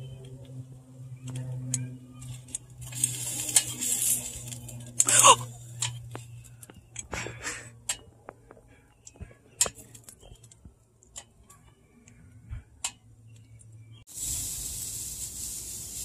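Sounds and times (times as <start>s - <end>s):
meat sizzling on grill: 14.1s - 16.0s.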